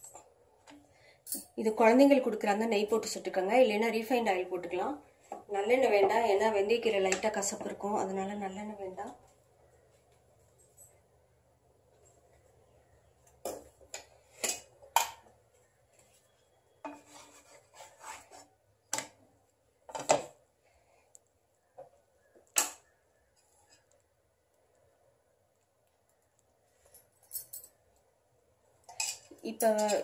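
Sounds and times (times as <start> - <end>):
spatula scraping and tapping pan: 16.8 - 19.1.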